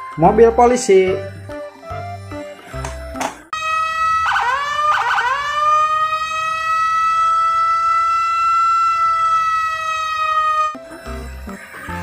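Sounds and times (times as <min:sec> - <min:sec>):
police siren wailing: 0:03.5 - 0:12.0.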